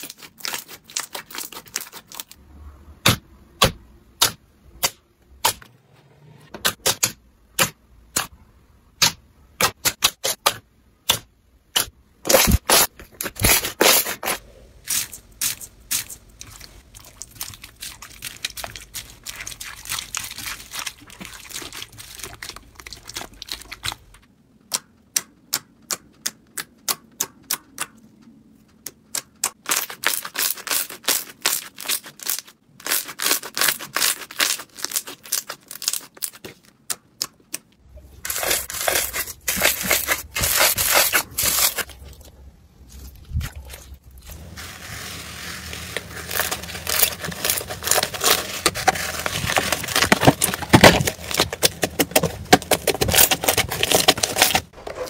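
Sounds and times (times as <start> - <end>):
slime popping and crackling: 11.8 - 24.2, 29.4 - 36.6, 44.3 - 54.8
hands squishing slime: 12.3 - 24.1, 28.9 - 54.8.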